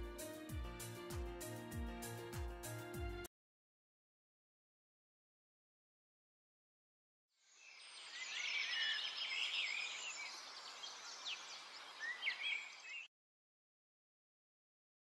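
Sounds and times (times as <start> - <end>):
steady outdoor hiss: 7.4 - 13.0
birds chirping: 7.6 - 13.1.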